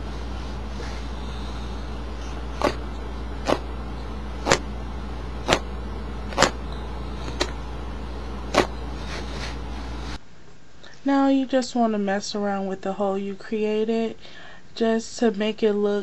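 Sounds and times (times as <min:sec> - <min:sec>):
denim scraped by hand: 0:01.8 - 0:03.7, 0:04.4 - 0:04.7, 0:05.4 - 0:05.7, 0:06.3 - 0:06.6, 0:08.4 - 0:10.2.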